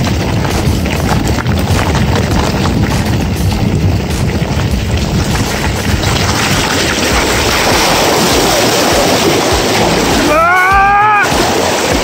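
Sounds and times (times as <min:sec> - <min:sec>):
bike rattling over gravel: 0:00.0 - 0:12.0
wheels splashing through water: 0:00.0 - 0:12.0
wind buffeting microphone: 0:00.0 - 0:12.0
person calling out: 0:10.3 - 0:11.3.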